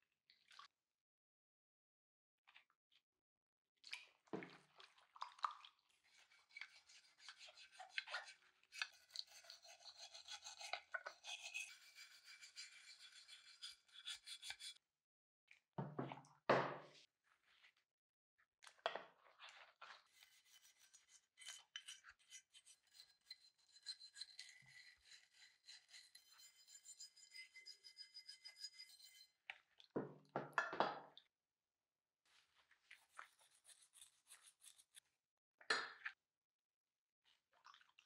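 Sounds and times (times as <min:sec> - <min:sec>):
wire brush scrubbing steel: 0:06.5 - 0:14.8, 0:20.2 - 0:29.2.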